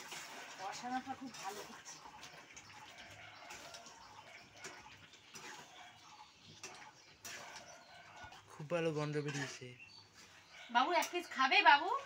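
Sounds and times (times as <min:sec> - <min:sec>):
spoon scraping pan: 0:00.7 - 0:12.0
chicken sizzling in pan: 0:01.2 - 0:06.1.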